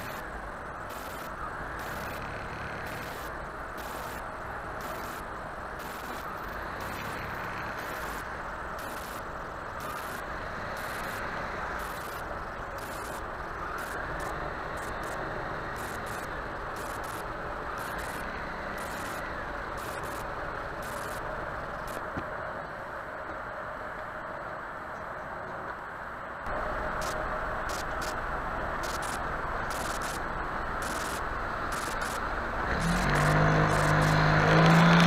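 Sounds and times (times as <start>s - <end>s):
car driving slowly: 0.0s - 35.0s.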